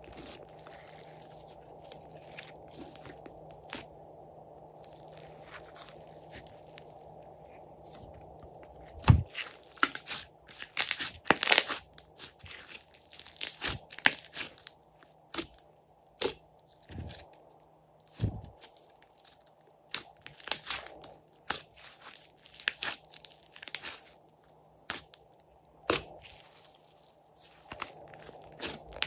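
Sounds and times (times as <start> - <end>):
slime crackling and popping: 9.3 - 14.7, 19.2 - 24.1, 25.8 - 29.0.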